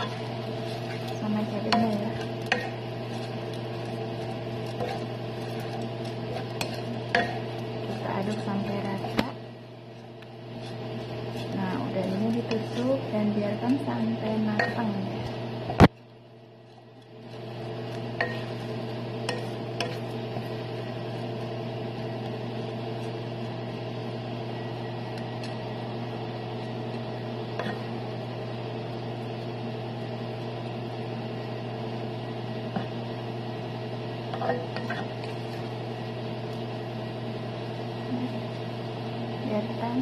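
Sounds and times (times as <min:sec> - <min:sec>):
spatula scraping a pan: 0:00.0 - 0:09.1, 0:10.5 - 0:13.0, 0:17.3 - 0:21.4, 0:34.3 - 0:35.8
steady electrical hum: 0:00.0 - 0:40.0.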